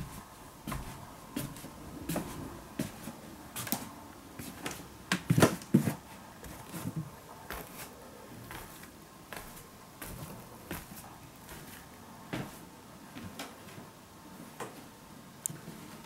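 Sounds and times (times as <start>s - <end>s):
footsteps on wooden stairs: 0.0s - 3.7s, 4.4s - 7.9s, 8.5s - 12.6s.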